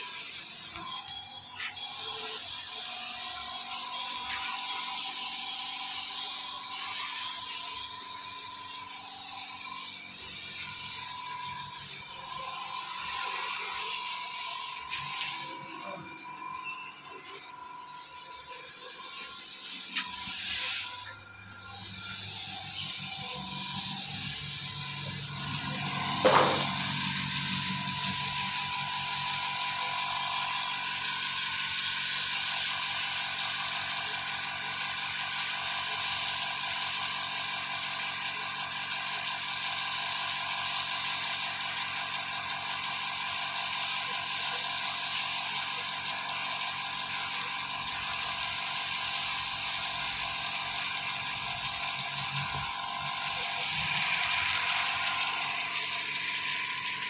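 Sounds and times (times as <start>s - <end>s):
paint spray gun hissing: 0.0s - 16.0s, 17.2s - 57.0s.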